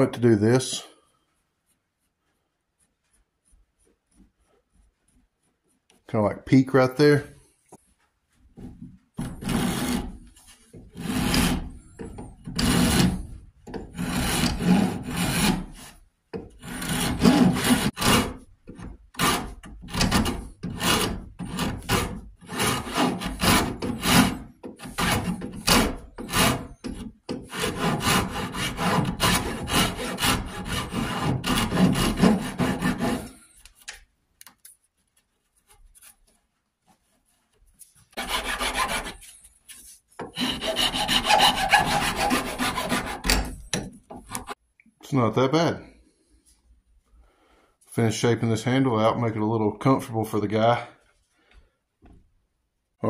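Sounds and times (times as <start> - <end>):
hand file rasping on wood: 9.2 - 33.6, 38.1 - 39.4, 40.2 - 44.6.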